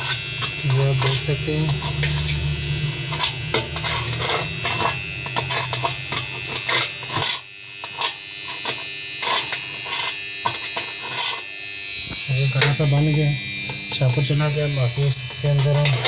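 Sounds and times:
low hum: 0.0 - 7.2, 12.4 - 16.0
metal tool scraping steel tub: 0.0 - 11.5, 13.7 - 16.0
high-pitched electrical buzz: 0.0 - 16.0.

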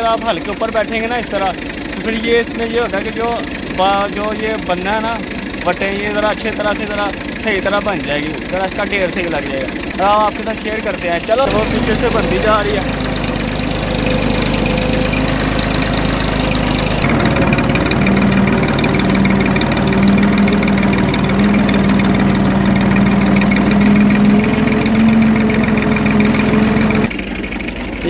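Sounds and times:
tractor engine running: 0.0 - 28.0.

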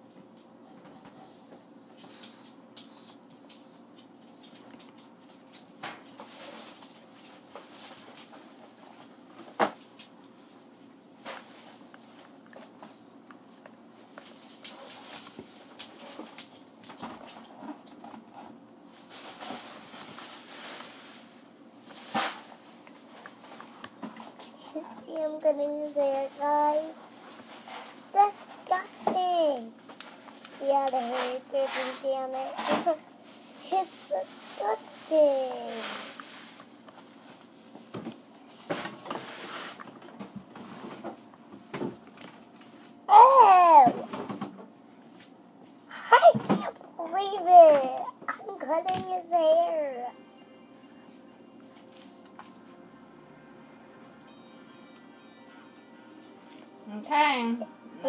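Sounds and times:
rustling: 14.0 - 41.2.

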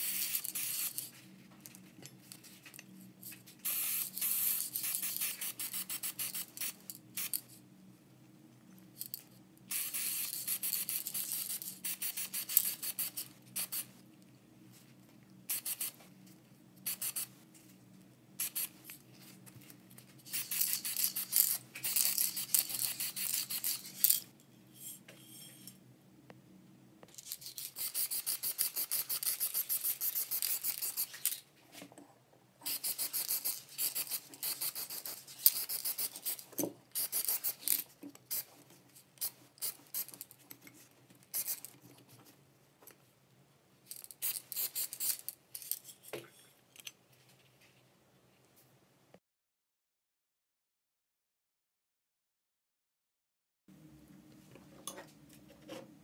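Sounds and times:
spray paint hissing: 0.0 - 1.1, 3.6 - 7.4, 9.7 - 13.9, 15.5 - 16.0, 16.8 - 17.3, 18.4 - 18.8, 20.3 - 24.2, 27.5 - 31.3, 32.6 - 38.5, 39.2 - 40.2, 41.3 - 41.7, 44.0 - 45.3.

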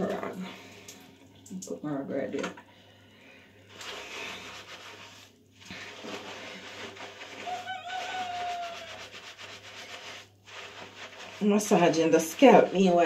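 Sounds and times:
fingers scrubbing wet hair: 3.7 - 13.0.

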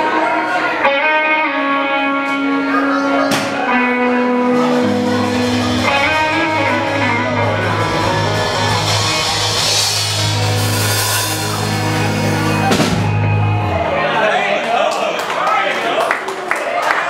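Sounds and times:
live country-rock band: 0.0 - 14.3.

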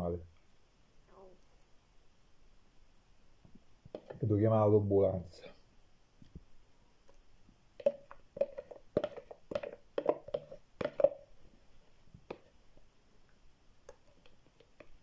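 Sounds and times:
spoon scraping plastic tub: 3.9 - 4.2, 7.8 - 11.3.

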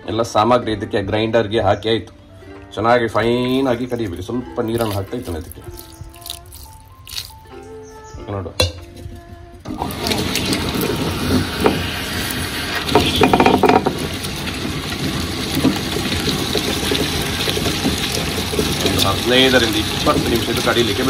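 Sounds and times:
grinder clatter: 9.7 - 21.0
wet grinder running: 9.7 - 21.0.

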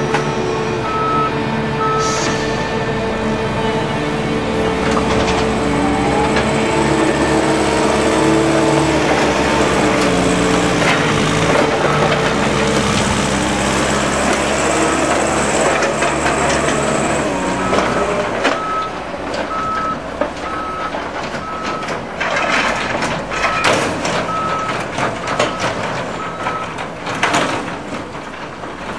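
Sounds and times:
diesel engines running hard: 0.0 - 28.9
reversing alarm beeps: 0.5 - 2.9, 17.6 - 21.9, 23.3 - 26.8
knocks and rattles: 4.6 - 28.9.

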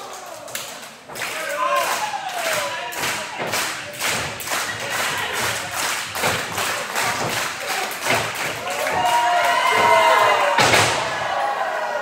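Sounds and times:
thuds and slaps in wrestling ring: 5.4 - 11.3.

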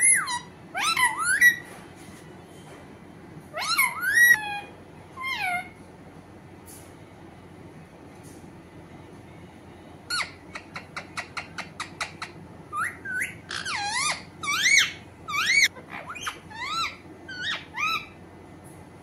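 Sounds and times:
parakeet chirping: 0.0 - 1.7, 3.5 - 5.8, 10.1 - 18.2
parakeet squeaky whistles: 0.0 - 1.7, 3.6 - 4.6, 10.1 - 18.2.

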